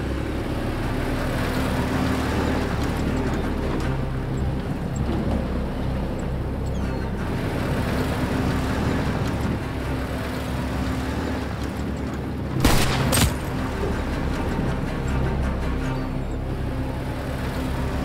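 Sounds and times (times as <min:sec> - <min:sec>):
film score music: 0:00.0 - 0:18.0
jeep engine running: 0:00.0 - 0:18.0
gunfire cracks: 0:12.6 - 0:13.5.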